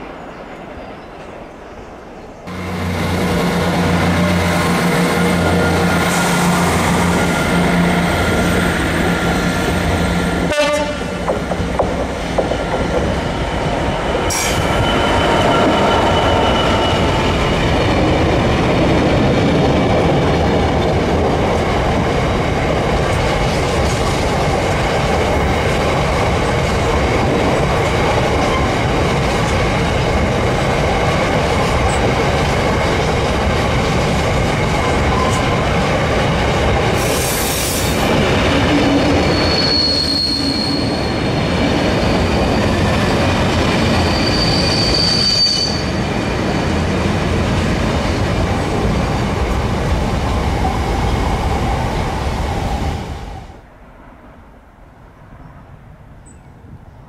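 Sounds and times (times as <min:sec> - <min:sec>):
diesel locomotive engine: 0:01.7 - 0:54.2
wagon wheels rumbling on rail: 0:02.5 - 0:52.9
wheel squeal: 0:14.3 - 0:17.5, 0:39.1 - 0:42.8, 0:43.9 - 0:46.0.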